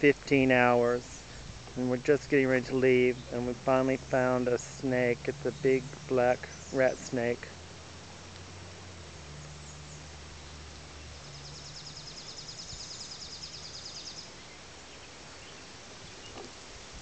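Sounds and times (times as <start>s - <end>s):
songbird rapid trill: 0.0s - 7.5s, 9.3s - 16.6s
soft outdoor background hiss: 0.0s - 17.0s.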